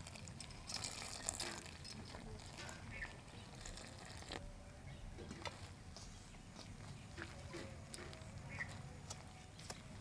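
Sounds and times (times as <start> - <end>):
hands mixing wet dough: 0.0 - 4.5.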